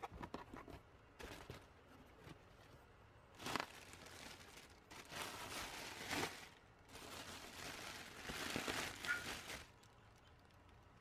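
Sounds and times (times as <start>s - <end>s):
plastic air pillows crinkling: 3.3s - 10.6s.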